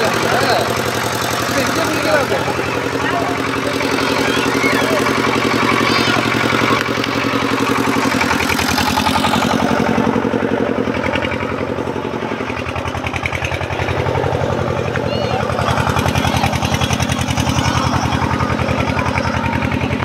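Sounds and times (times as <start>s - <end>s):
engine running steadily: 0.0s - 20.0s.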